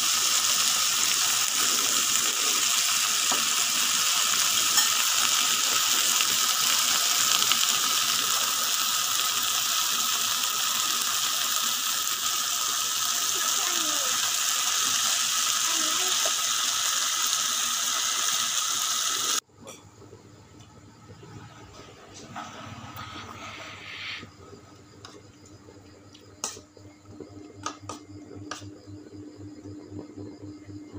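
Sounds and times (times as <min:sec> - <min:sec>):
meat and vegetables sizzling: 0:00.0 - 0:19.4.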